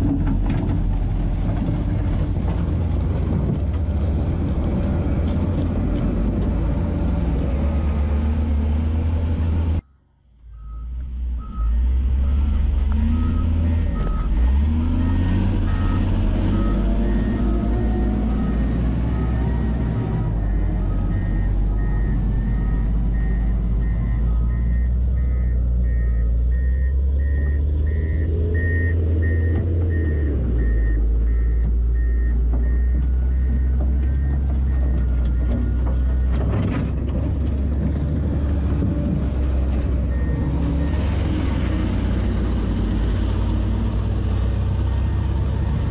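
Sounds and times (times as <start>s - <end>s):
wheel loader diesel engine running: 0.0s - 9.8s, 10.4s - 45.9s
backup alarm beeping: 10.5s - 36.4s.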